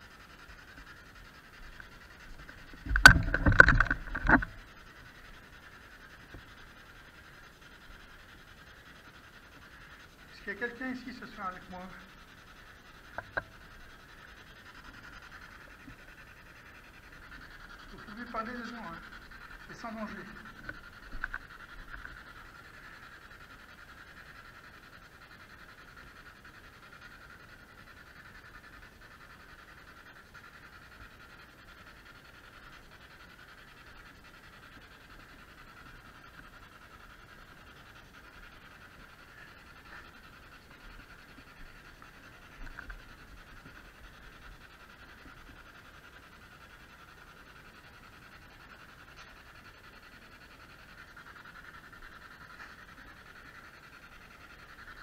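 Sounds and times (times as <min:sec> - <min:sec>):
radio static hiss: 0:00.0 - 0:55.0.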